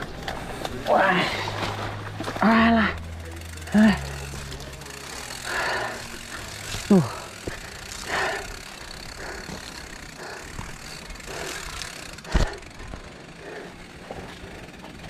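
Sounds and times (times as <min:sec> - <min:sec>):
bike rattling over bumps: 0:00.0 - 0:15.0.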